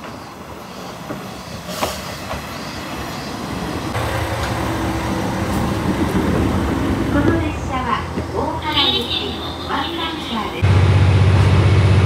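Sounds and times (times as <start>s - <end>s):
diesel engine humming: 3.6s - 12.0s.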